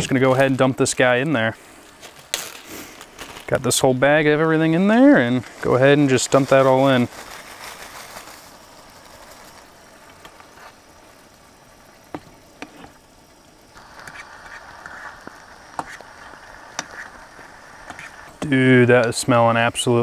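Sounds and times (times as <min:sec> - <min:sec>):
meat sizzling in a skillet: 0:13.3 - 0:18.8
fork scraping a pan: 0:15.8 - 0:16.0, 0:16.7 - 0:17.1, 0:17.8 - 0:18.2.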